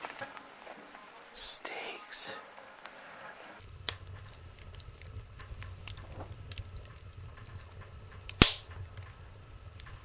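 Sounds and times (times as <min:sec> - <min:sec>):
wood fire crackling: 0:00.0 - 0:10.0
low steady rumble: 0:03.6 - 0:10.0
loud sharp pop: 0:08.3 - 0:08.8.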